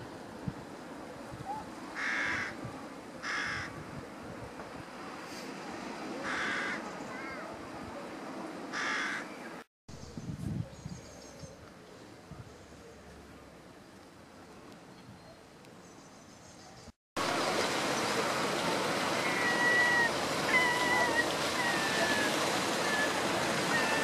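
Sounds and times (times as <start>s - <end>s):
crow cawing: 2.0s - 2.6s, 3.2s - 3.7s, 6.2s - 6.8s, 8.7s - 9.3s.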